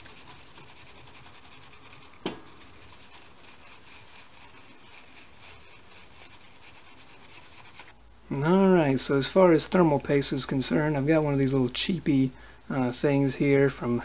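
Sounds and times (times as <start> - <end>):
cloth rag rubbing on metal: 0.0 - 7.9.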